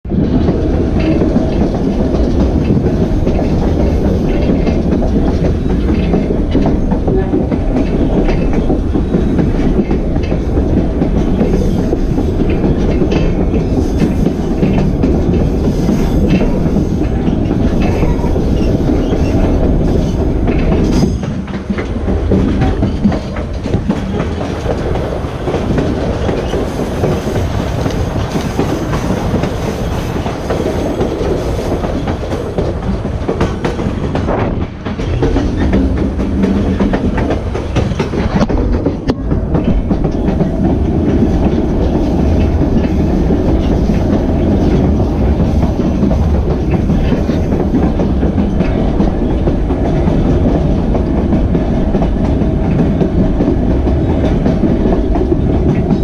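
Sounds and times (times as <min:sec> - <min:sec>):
train wheel clacks: 0:00.0 - 0:56.0
train wheels rumbling on rail: 0:00.0 - 0:56.0.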